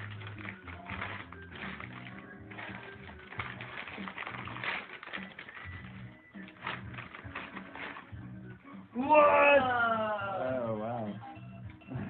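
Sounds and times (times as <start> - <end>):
wrapping paper crinkling and tearing: 0.0 - 8.4.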